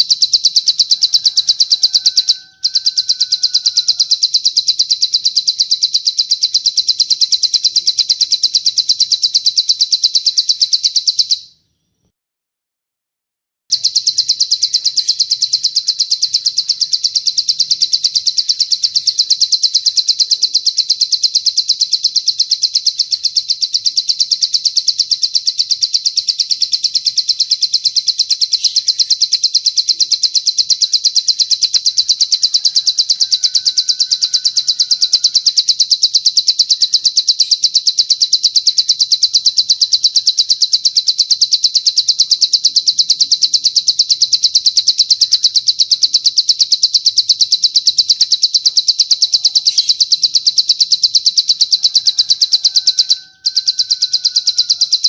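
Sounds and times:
songbird trilling: 0:00.0 - 0:11.9, 0:13.7 - 0:55.0.

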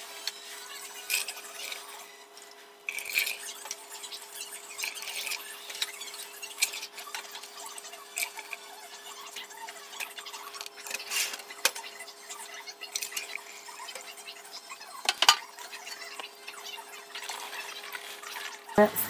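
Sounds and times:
plastic ladle scraping in pot: 0:09.3 - 0:11.7.

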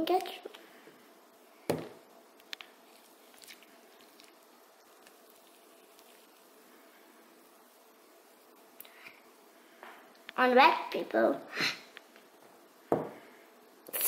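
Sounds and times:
thump: 0:01.7 - 0:02.0, 0:12.9 - 0:13.2.

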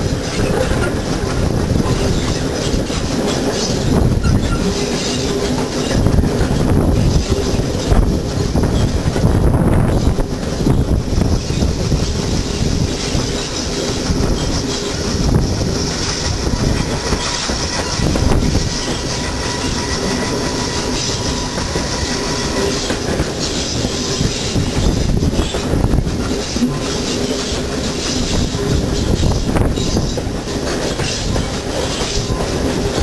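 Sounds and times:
steam train running: 0:00.0 - 0:33.0
wheels clattering over rail joints: 0:00.0 - 0:33.0
wind buffeting microphone: 0:00.0 - 0:33.0.

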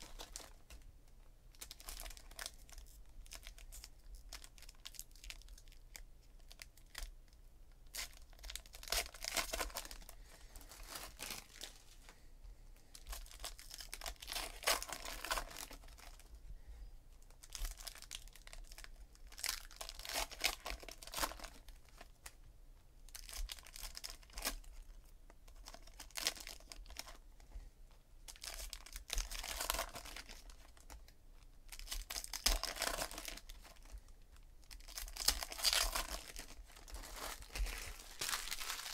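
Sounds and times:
foil packs tearing and crinkling: 0:31.8 - 0:33.9, 0:34.8 - 0:38.9.

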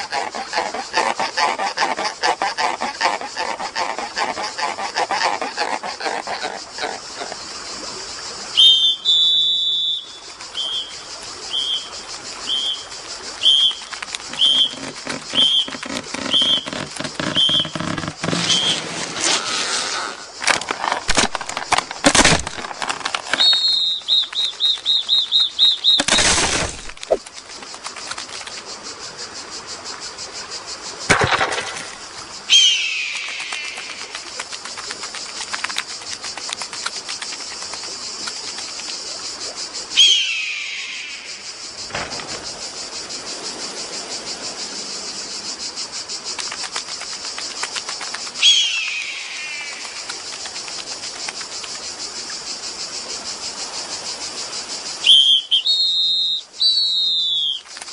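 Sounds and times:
short high whistle-like squeaks: 0:08.6 - 0:10.9, 0:14.4 - 0:17.8, 0:18.4 - 0:18.9.

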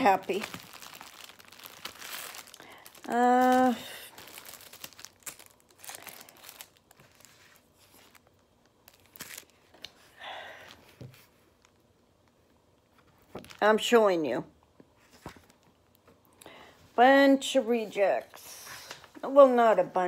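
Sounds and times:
plastic packaging crinkling: 0:00.0 - 0:10.0.

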